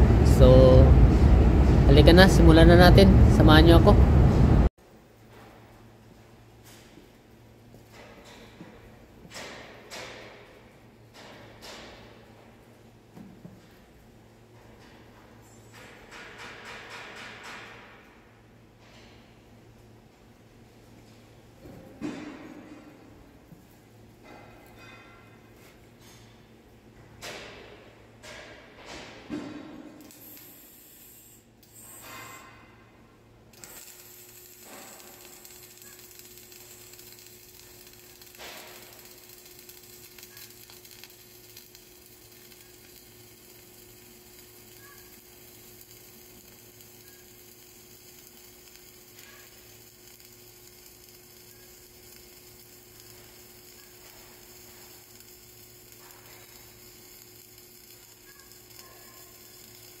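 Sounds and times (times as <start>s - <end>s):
arc welding: 0.0s - 4.7s, 6.8s - 12.7s, 15.7s - 18.2s, 27.3s - 32.8s, 33.5s - 60.0s
low hum: 0.0s - 4.7s.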